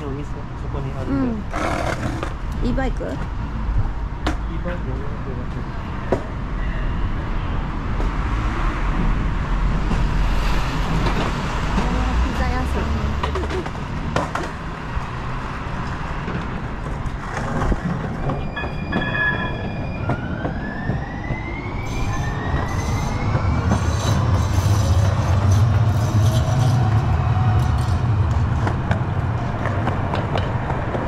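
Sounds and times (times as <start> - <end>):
train passing: 14.8 - 31.0
rising whines: 18.1 - 29.6.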